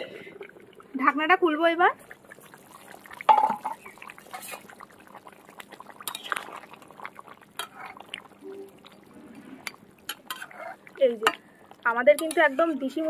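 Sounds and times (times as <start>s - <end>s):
spatula stirring liquid: 2.0s - 13.0s
spatula scraping pot: 4.3s - 4.7s, 9.6s - 11.4s, 12.1s - 13.0s.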